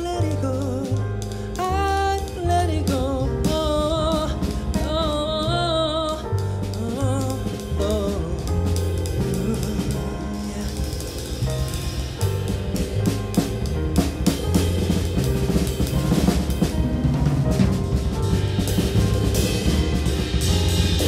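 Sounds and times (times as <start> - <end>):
drum kit: 0.0 - 21.0
electric bass: 0.0 - 21.0.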